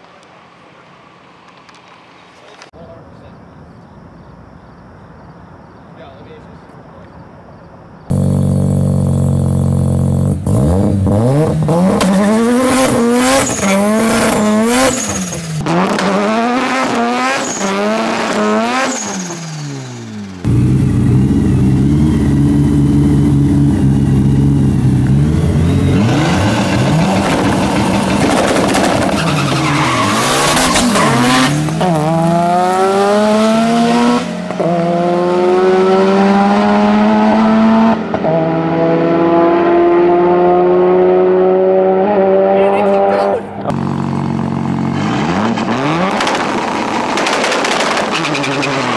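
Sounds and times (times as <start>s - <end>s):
turbocharged engine revving: 8.1s - 48.9s
race cars accelerating hard: 10.4s - 20.2s, 25.0s - 48.9s.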